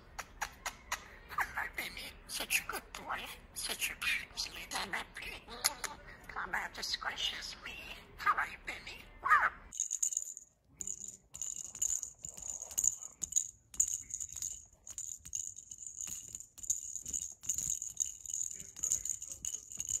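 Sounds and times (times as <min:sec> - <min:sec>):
small bell jingling: 0:09.7 - 0:20.0.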